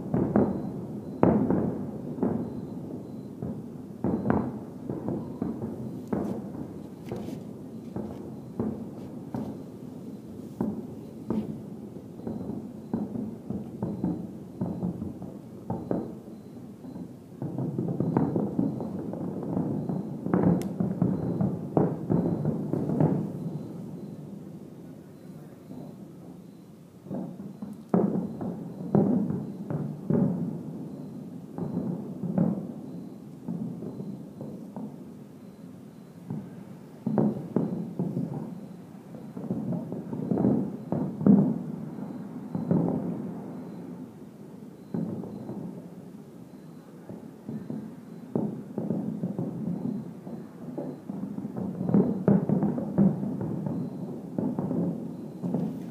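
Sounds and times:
distant fireworks bangs: 0:00.0 - 0:55.9.

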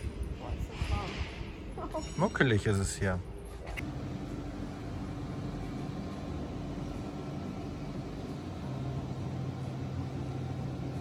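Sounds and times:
ventilation fan hum: 0:03.7 - 0:11.0.

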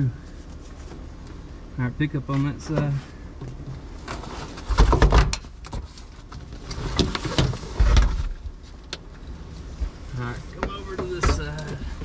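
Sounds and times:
seat knocking and scraping: 0:02.7 - 0:08.6, 0:09.8 - 0:12.0.

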